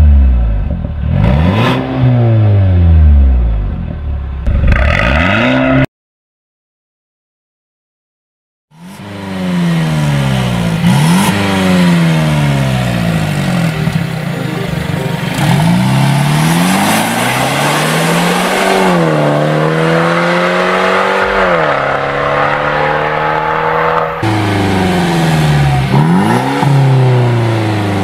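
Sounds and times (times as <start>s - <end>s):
car engine revving hard: 1.0s - 2.9s, 4.5s - 5.8s, 8.8s - 13.6s, 15.3s - 28.0s.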